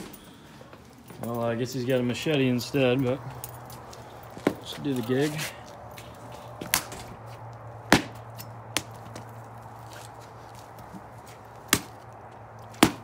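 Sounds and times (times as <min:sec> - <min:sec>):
machete chopping coconut: 0:07.9 - 0:09.0, 0:11.7 - 0:12.0, 0:12.7 - 0:13.0.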